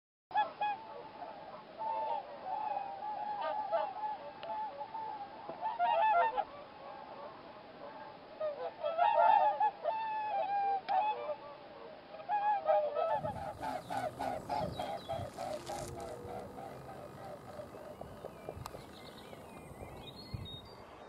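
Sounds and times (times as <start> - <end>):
whooper swans calling: 13.1 - 20.5.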